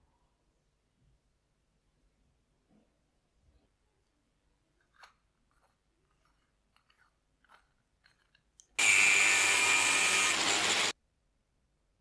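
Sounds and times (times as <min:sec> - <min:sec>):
power tool whining: 0:08.8 - 0:11.0.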